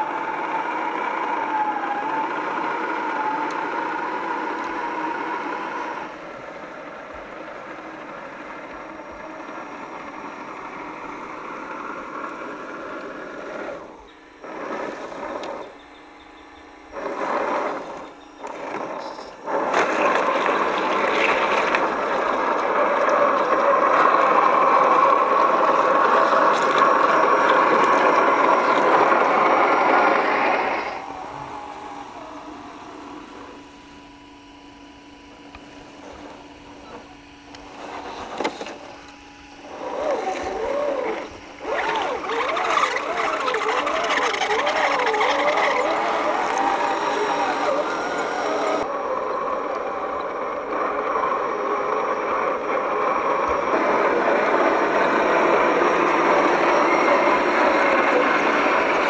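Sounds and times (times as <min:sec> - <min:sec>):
rc car motor whining: 0:00.0 - 0:59.0.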